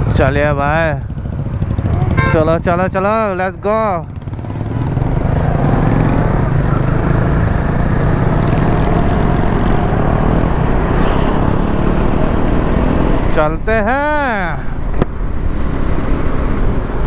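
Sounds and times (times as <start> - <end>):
motorcycle engine running: 0.0 - 10.0
wind and road noise: 0.0 - 17.0.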